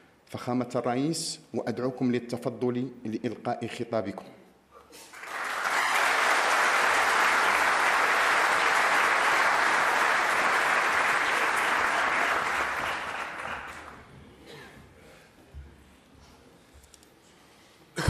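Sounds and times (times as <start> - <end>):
crowd applauding: 5.1 - 14.1.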